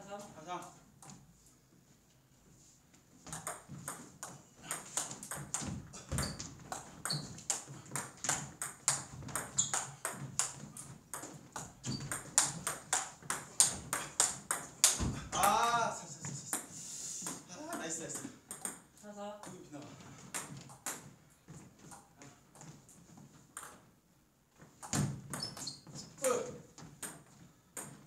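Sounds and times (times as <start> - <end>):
table tennis ball clicking: 6.8 - 15.5.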